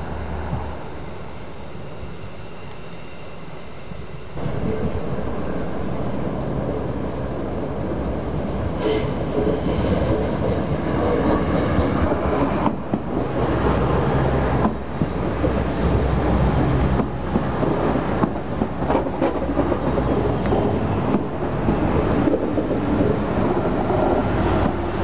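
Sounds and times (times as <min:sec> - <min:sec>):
train wheel squeal: 0:00.0 - 0:06.4, 0:08.7 - 0:12.9
diesel train engine and wheel rumble: 0:00.0 - 0:25.0.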